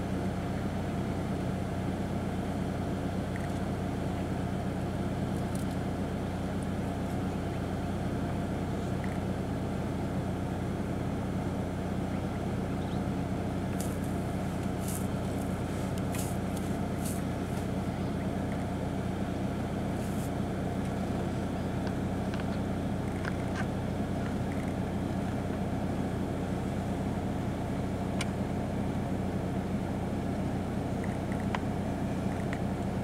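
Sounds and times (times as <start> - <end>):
vehicle engine idling: 0.0 - 33.0.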